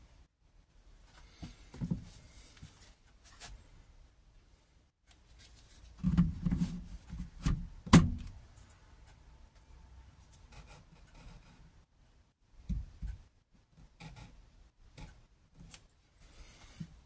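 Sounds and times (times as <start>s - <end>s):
plastic clunks and knocks: 6.0s - 8.4s.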